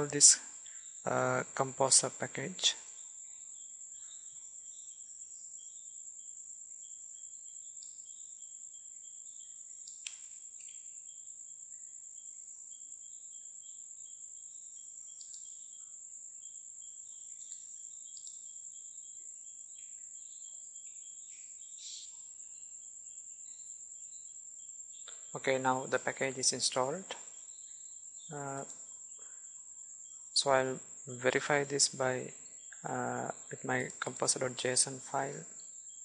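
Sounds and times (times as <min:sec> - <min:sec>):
faint chirps: 0:00.0 - 0:36.0.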